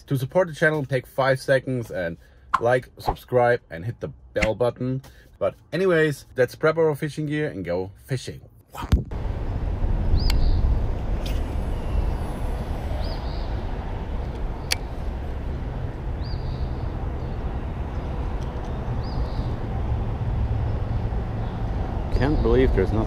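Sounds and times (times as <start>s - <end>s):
highway traffic rumble: 9.1s - 23.0s.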